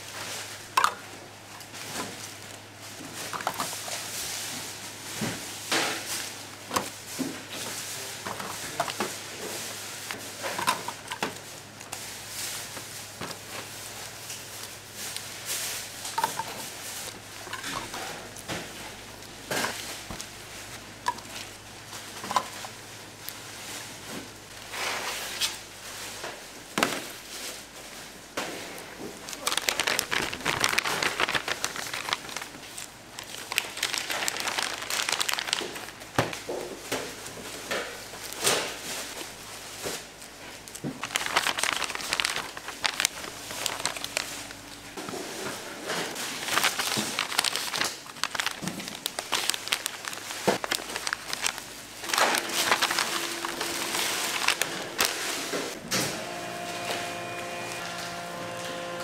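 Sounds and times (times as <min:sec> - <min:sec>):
plastic packaging crinkling: 0:29.2 - 0:55.8.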